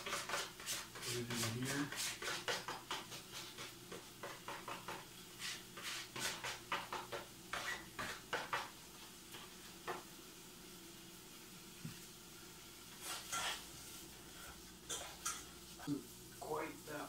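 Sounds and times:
spoon scraping and tapping plate: 13.0s - 13.7s, 14.8s - 15.5s.

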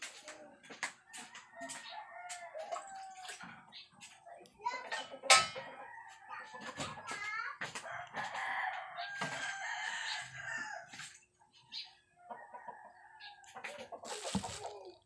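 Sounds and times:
rooster crowing: 7.9s - 11.0s.

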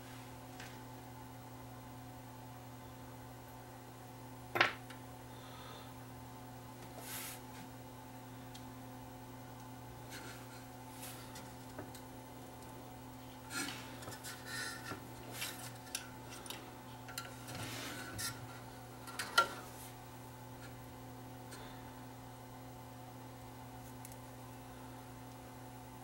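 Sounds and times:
faint steady hum: 0.0s - 26.0s
rustling and clicks of handling parts: 9.6s - 20.0s.

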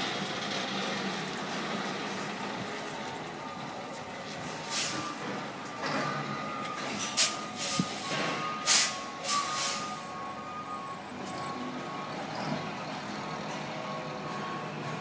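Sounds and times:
air brake hisses: 4.7s - 5.1s, 7.2s - 10.0s.

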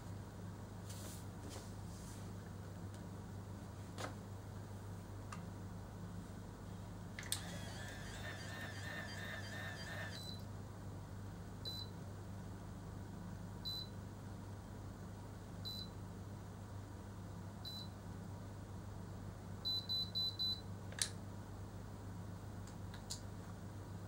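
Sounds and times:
steady low hum: 5.8s - 10.9s
hair curler beeping: 7.2s - 10.3s.

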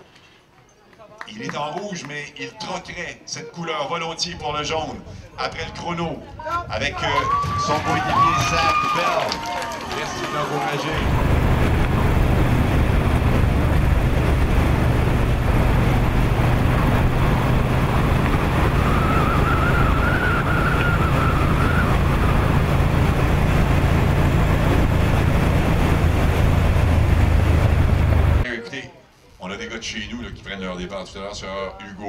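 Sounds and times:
road and wind noise: 5.1s - 28.5s
engine hum: 9.7s - 28.4s.

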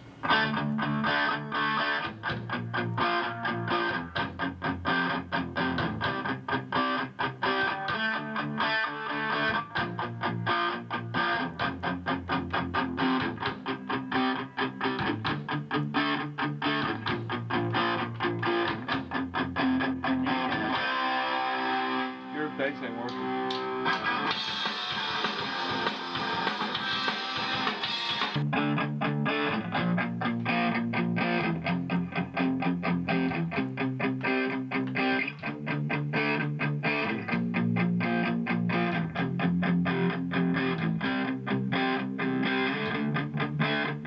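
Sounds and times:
electric guitar: 0.0s - 44.0s
drum kit beat: 0.3s - 8.6s, 9.8s - 20.7s, 23.0s - 37.6s.

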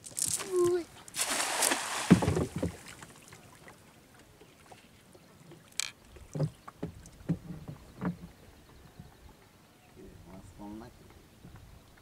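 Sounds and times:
water splashes: 0.0s - 7.2s
soft knocks on wooden boat: 2.0s - 2.9s, 6.3s - 8.4s.

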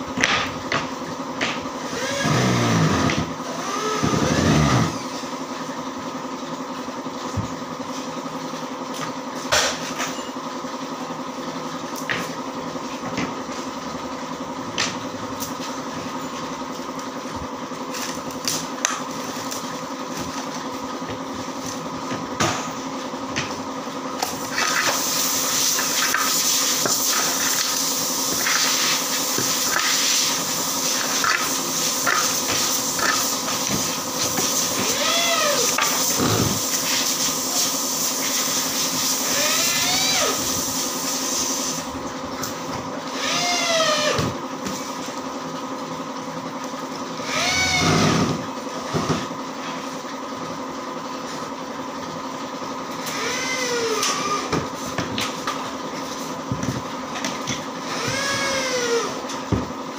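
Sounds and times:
workshop machinery motor hum: 0.0s - 59.9s.

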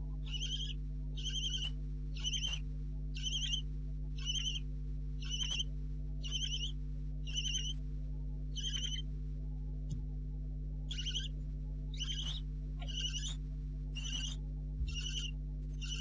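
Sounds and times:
low electrical hum: 0.0s - 16.0s
owlets calling: 0.2s - 2.6s, 3.2s - 3.6s, 4.2s - 7.8s, 8.6s - 9.0s, 10.9s - 13.4s, 14.0s - 16.0s.

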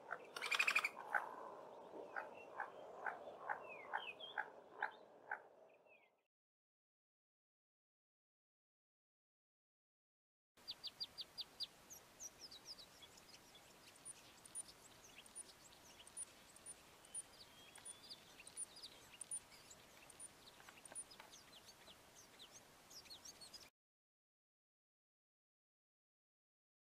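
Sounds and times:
bird singing high chirps: 0.0s - 1.0s, 10.6s - 23.7s.

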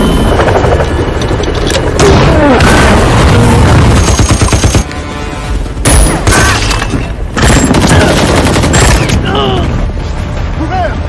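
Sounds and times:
rapid automatic gunfire: 3.8s - 4.8s, 7.4s - 9.1s.

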